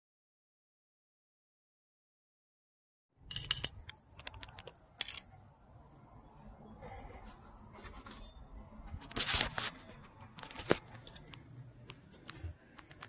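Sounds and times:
sharp clicks and light knocks: 0:03.3 - 0:05.2, 0:09.0 - 0:13.0.

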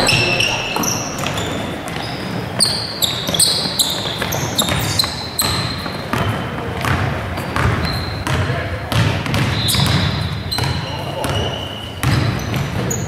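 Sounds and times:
ball bouncing: 0:00.0 - 0:03.4
shoes squeaking on wooden floor: 0:00.0 - 0:06.7.

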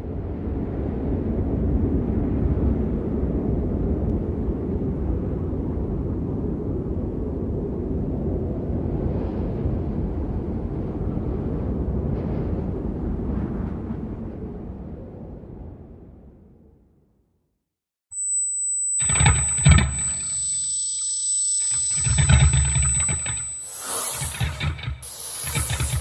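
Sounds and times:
low rumbling drone: 0:18.8 - 0:26.0.

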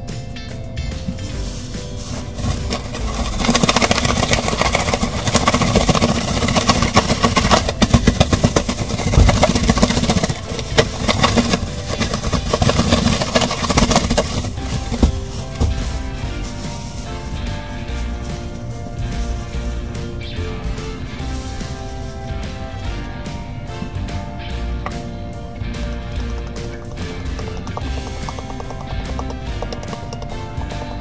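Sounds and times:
plastic bag crinkling: 0:01.2 - 0:20.1, 0:21.2 - 0:22.5.

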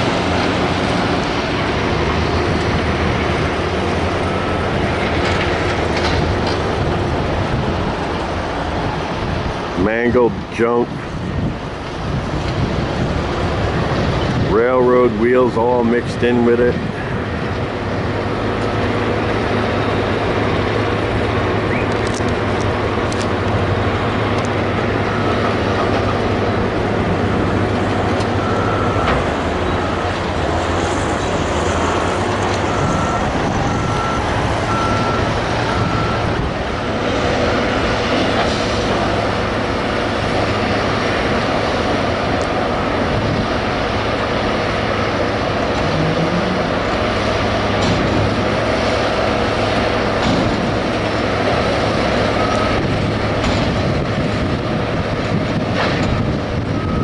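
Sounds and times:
heavy diesel machines running: 0:00.0 - 0:57.0
reversing alarm beeps: 0:25.0 - 0:25.5, 0:28.3 - 0:30.0, 0:31.9 - 0:36.4, 0:52.3 - 0:53.0, 0:56.2 - 0:57.0.

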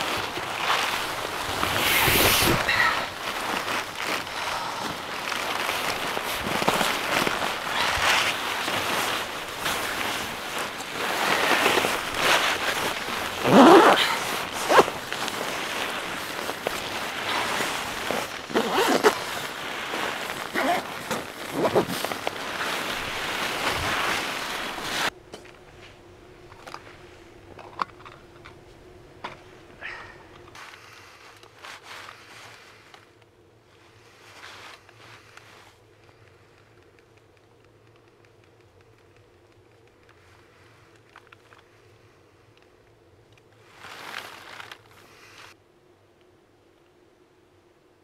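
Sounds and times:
zipper rasps: 0:00.0 - 0:25.1
sleeping bag rustling: 0:00.0 - 0:26.0, 0:29.4 - 0:36.9, 0:43.5 - 0:45.6
faint steady hum: 0:00.0 - 0:48.0.

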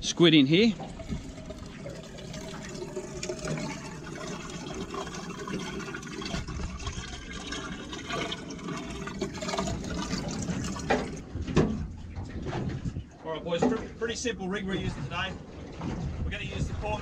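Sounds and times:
water sloshing in a tank: 0:00.0 - 0:17.0.

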